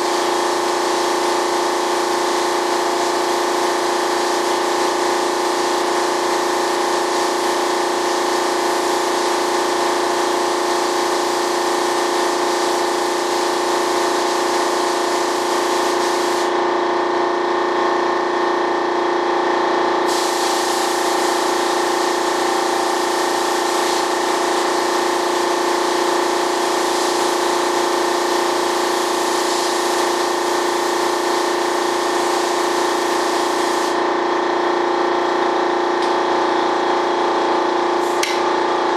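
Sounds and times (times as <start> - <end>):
paint spray gun hissing: 0.0 - 16.6, 20.0 - 34.2, 37.9 - 38.9
steady machine hum: 0.0 - 38.9.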